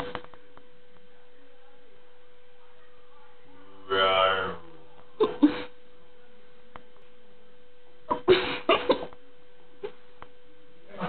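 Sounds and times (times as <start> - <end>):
steady hum: 0.0 - 11.0.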